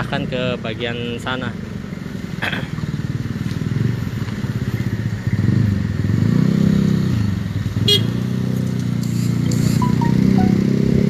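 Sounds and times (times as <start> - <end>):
passing road traffic: 0.0 - 11.0.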